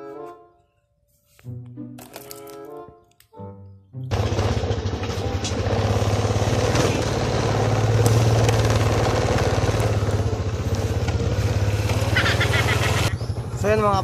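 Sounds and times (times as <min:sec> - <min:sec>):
engine running with rapid throb: 0:04.1 - 0:14.0.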